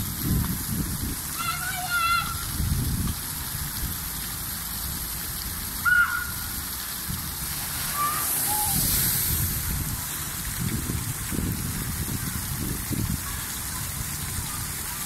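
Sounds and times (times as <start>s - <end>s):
running water: 0.0s - 15.0s
water splashing down: 0.0s - 15.0s
short high cries: 5.8s - 6.5s, 7.8s - 9.2s.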